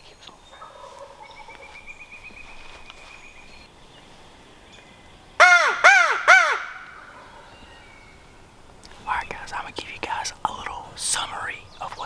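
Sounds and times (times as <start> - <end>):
crow call caws: 5.4 - 7.5.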